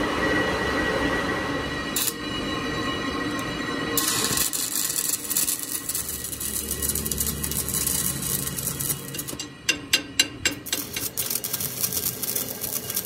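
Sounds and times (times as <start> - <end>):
metalworking machinery whining: 0.0 - 13.0
harsh high hiss with crackle: 3.3 - 9.4.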